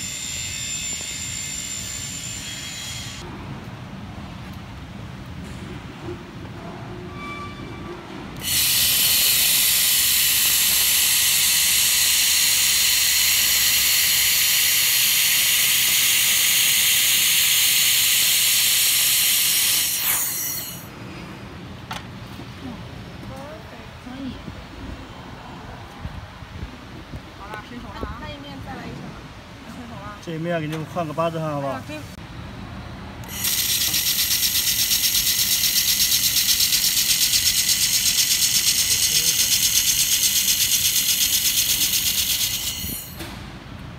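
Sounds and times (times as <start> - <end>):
laser welding gun hissing: 8.4 - 20.9, 33.2 - 43.2.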